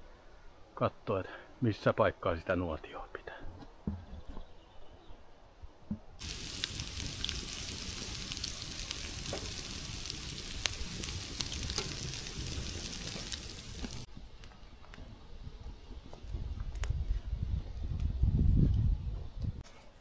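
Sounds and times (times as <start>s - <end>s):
food sizzling in a pan: 6.2s - 14.1s.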